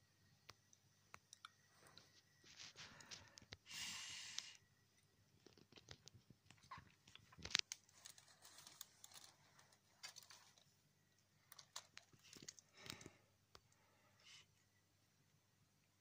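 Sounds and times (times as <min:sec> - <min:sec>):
plastic parts clicking and rustling: 0:05.4 - 0:13.2.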